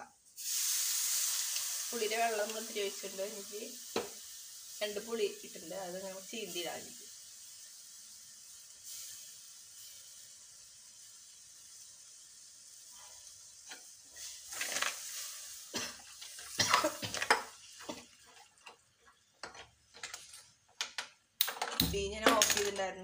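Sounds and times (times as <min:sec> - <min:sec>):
spices sizzling in a pot: 0:00.0 - 0:23.0
steel spoon scraping a pot: 0:19.4 - 0:20.5.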